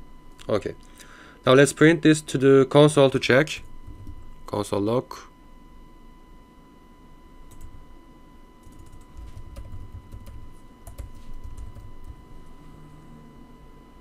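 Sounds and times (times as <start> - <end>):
typing on computer keyboard: 8.6 - 12.2.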